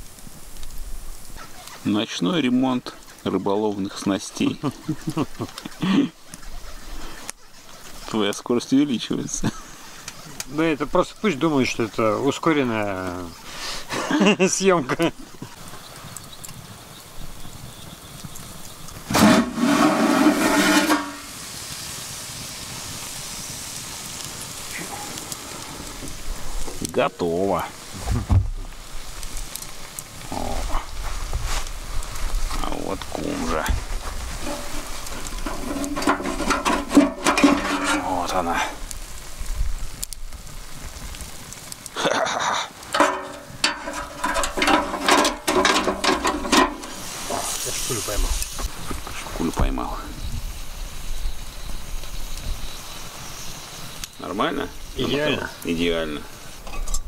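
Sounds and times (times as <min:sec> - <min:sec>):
wood fire hissing: 0:00.0 - 0:57.0
knocks and scrapes on wire rack: 0:19.1 - 0:21.3, 0:34.4 - 0:38.1, 0:42.9 - 0:47.5.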